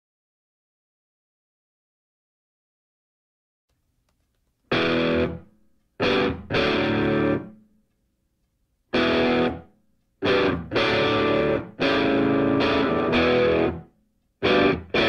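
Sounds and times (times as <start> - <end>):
distorted electric guitar chords: 4.7 - 7.5, 8.9 - 15.0.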